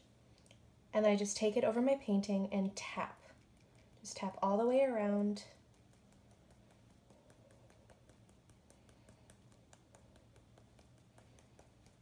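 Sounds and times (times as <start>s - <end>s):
faint brush taps: 5.0s - 12.0s.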